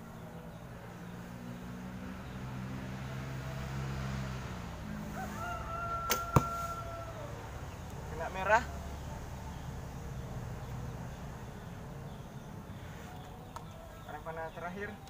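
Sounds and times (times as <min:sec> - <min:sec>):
rooster crowing: 0:04.9 - 0:07.6
arrow hitting target: 0:06.0 - 0:06.8.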